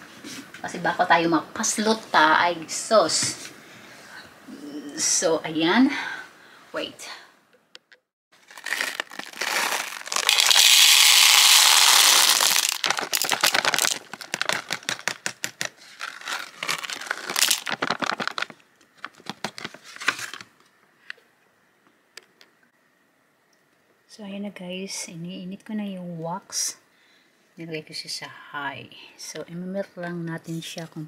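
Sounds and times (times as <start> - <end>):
wax beads pouring into metal pot: 8.4 - 15.4, 16.0 - 18.5
plastic bag crinkling: 8.4 - 20.4.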